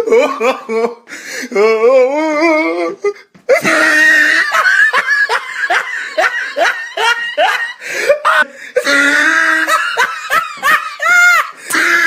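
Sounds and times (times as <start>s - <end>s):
person laughing hysterically: 0.0s - 12.0s.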